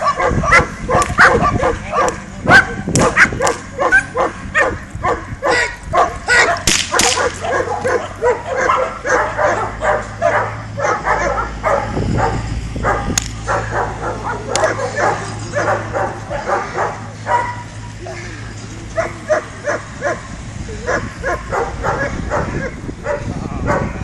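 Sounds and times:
dog barking excitedly: 0.0s - 18.2s, 19.0s - 24.0s
sharp cracks: 2.9s - 3.7s, 6.6s - 7.4s, 13.1s - 13.5s.

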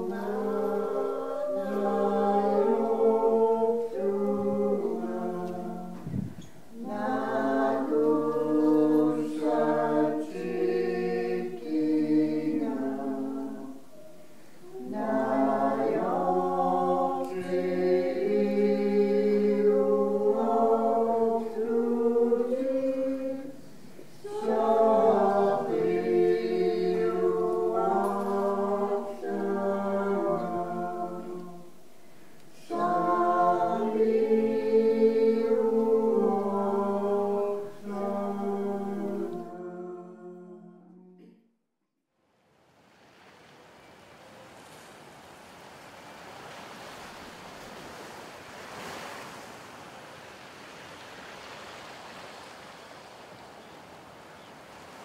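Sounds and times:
choir singing unaccompanied: 0.0s - 41.4s.

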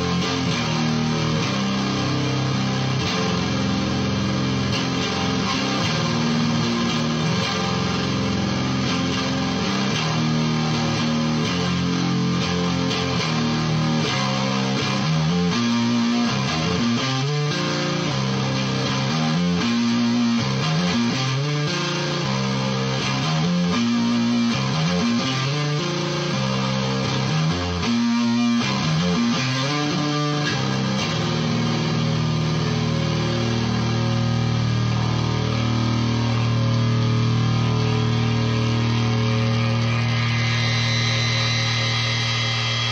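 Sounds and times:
fuzz electric guitar riff: 0.0s - 42.9s.

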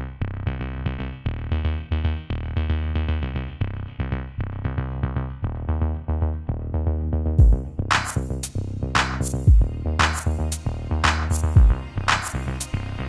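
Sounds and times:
electronic music with beat: 5.6s - 13.0s.

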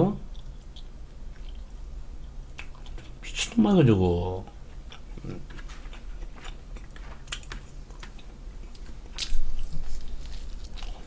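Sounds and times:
chewing: 0.3s - 1.7s, 2.5s - 3.2s, 4.9s - 11.0s.

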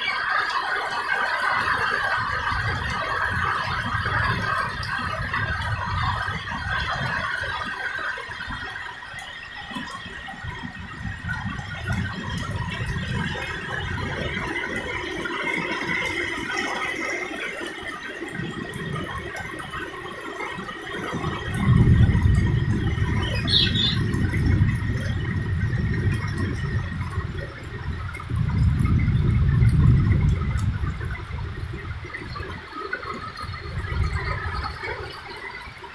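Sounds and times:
heavy rain downpour: 0.0s - 35.9s.

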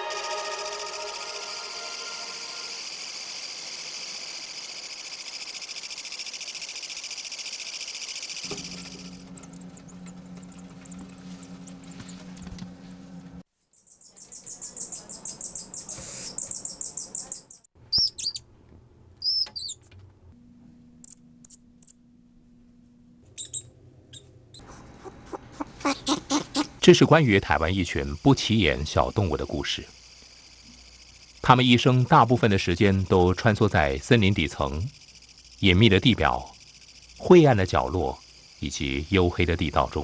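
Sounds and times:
loud fast-pulsing high trill: 0.0s - 3.6s
high night insect chorus: 0.6s - 8.6s, 26.9s - 40.0s.

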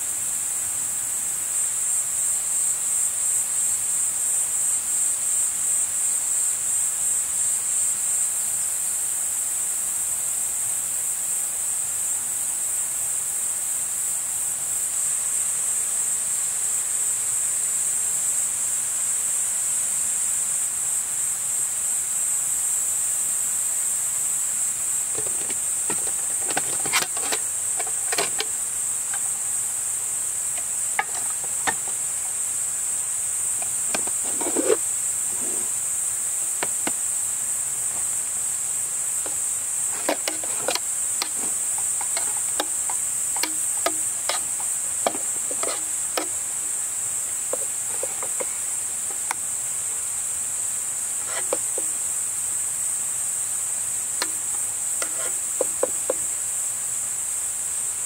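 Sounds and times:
insects chirping: 0.0s - 58.0s
short clicks and knocks: 25.2s - 29.6s, 30.6s - 32.3s, 33.6s - 34.8s, 36.4s - 37.0s, 39.3s - 46.4s, 47.5s - 49.4s, 54.2s - 56.2s.

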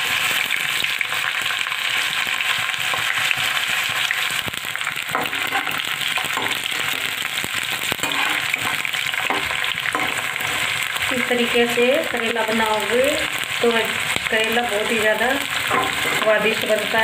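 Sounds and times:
vegetable slices deep-frying in oil: 0.0s - 17.0s
spoon stirring in oil: 5.0s - 11.2s, 14.8s - 16.9s.

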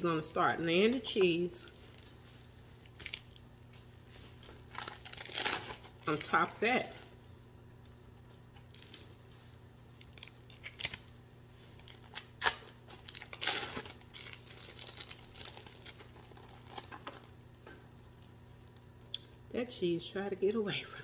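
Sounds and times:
plastic wrappers crinkling: 0.9s - 17.4s.

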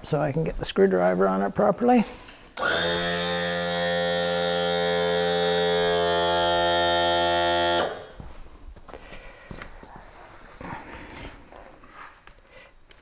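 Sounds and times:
electric tilt motor humming: 2.6s - 8.2s.

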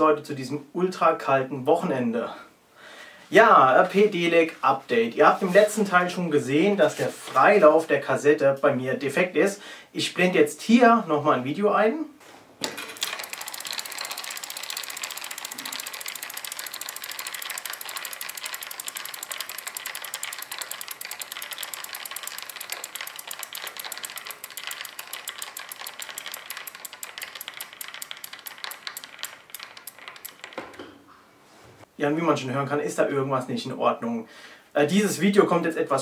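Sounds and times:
freewheel ratcheting clicks: 12.6s - 30.7s.

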